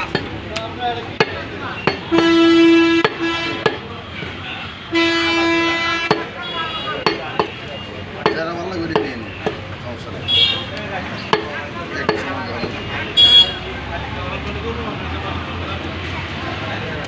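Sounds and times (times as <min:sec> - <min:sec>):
horn blasts: 0:02.1 - 0:07.0.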